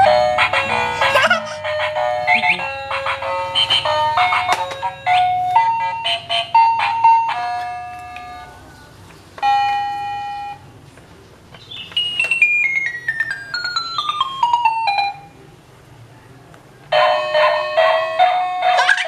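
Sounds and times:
toy keyboard beeping notes: 0:00.0 - 0:02.9, 0:11.9 - 0:15.3.

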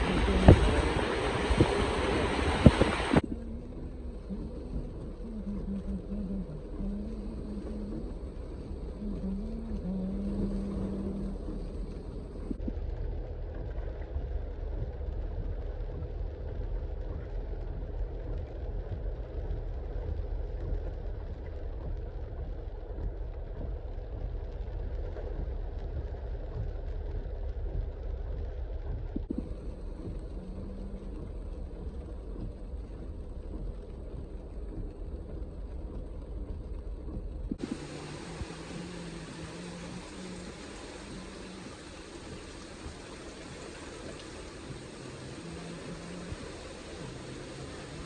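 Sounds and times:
vehicles driving through floodwater: 0:00.0 - 0:13.4, 0:35.0 - 0:48.0
low droning tone: 0:00.0 - 0:48.0.

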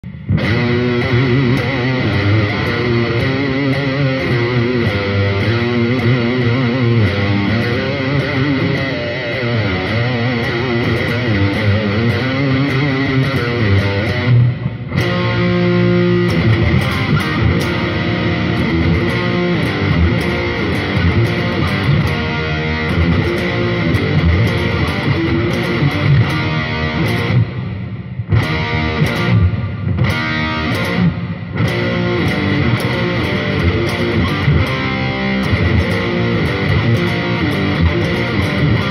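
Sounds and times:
distorted electric guitar: 0:00.0 - 0:38.9.

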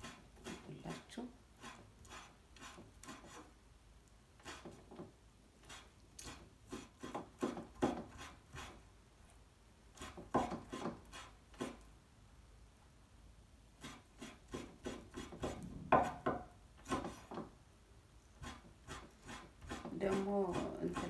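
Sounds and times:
knife chopping on wooden board: 0:10.0 - 0:11.0, 0:14.9 - 0:17.5.

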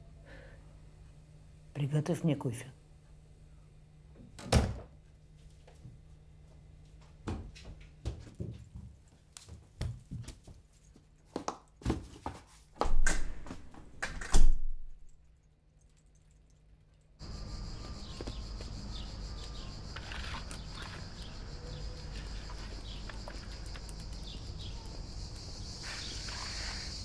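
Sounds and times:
small knocks and clicks: 0:19.4 - 0:25.5.

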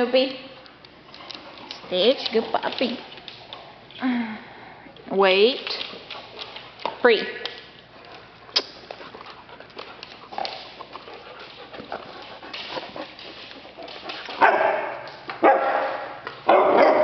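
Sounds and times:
dog barking: 0:14.4 - 0:17.0.

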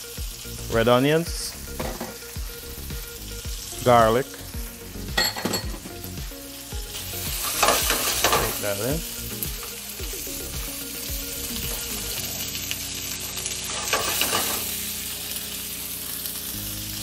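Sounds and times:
meat sizzling in a frying pan: 0:00.0 - 0:17.0
metal tongs clicking on pan: 0:13.7 - 0:14.7.

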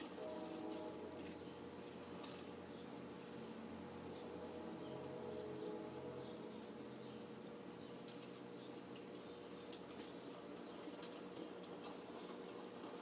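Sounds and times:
bird chirping: 0:02.6 - 0:12.5.

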